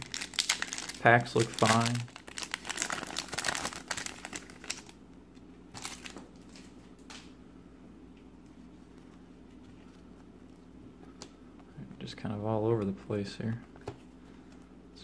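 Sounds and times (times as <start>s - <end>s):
cards rustling: 0.0s - 4.9s
foil wrapper crinkling: 0.0s - 5.0s, 5.7s - 6.7s.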